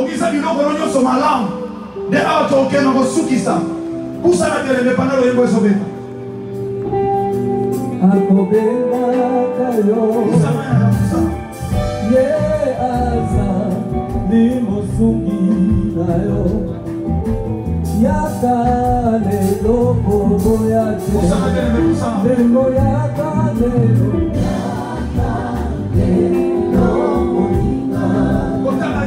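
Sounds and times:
instrumental accompaniment: 0:00.0 - 0:29.0
person singing: 0:07.8 - 0:17.0, 0:18.0 - 0:29.0.

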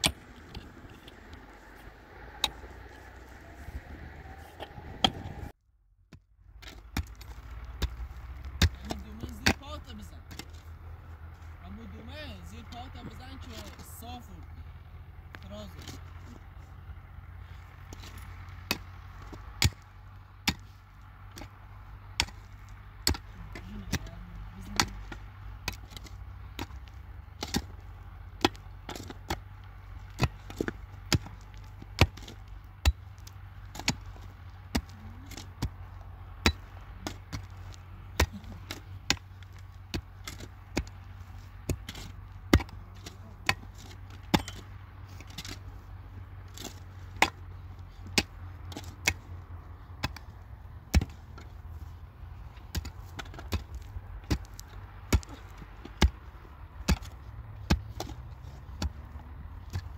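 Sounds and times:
hand tool striking: 0:39.9 - 0:45.6.

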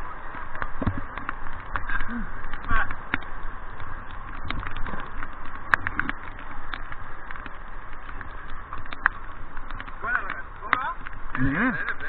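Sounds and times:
raindrops tapping on camera: 0:00.0 - 0:12.0
river water rushing: 0:00.0 - 0:12.0.

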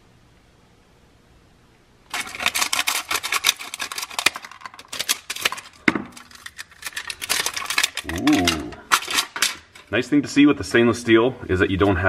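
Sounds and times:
foil crinkling and tearing: 0:02.1 - 0:09.8.

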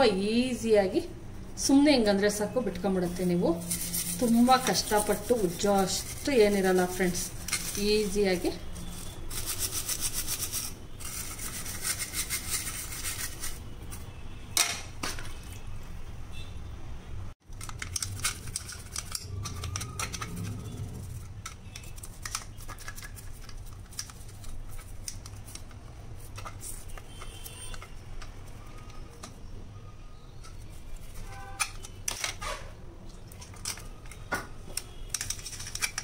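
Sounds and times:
brush scrubbing metal filter: 0:03.2 - 0:13.6.

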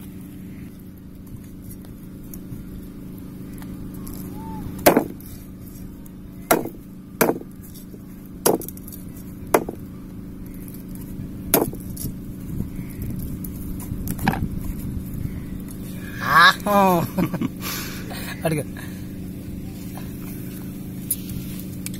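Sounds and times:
cleaver chopping on wooden board: 0:04.8 - 0:05.2, 0:06.5 - 0:07.4, 0:08.4 - 0:08.7, 0:09.5 - 0:09.8, 0:11.5 - 0:11.8.

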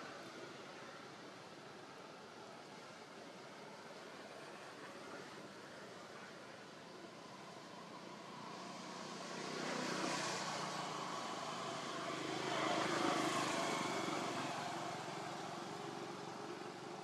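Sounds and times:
passing vehicle engine: 0:08.0 - 0:16.8.

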